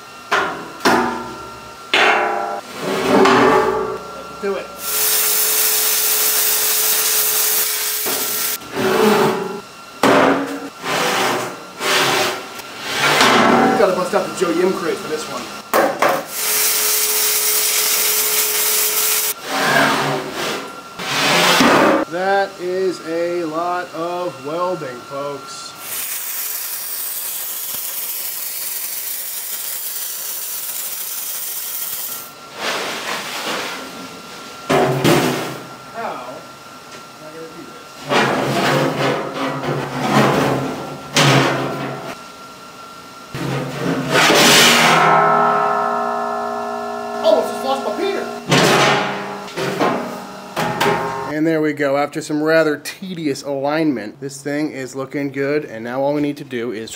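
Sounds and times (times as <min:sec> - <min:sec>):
welding arc crackling: 0:04.8 - 0:08.6, 0:16.3 - 0:19.4, 0:25.8 - 0:32.3.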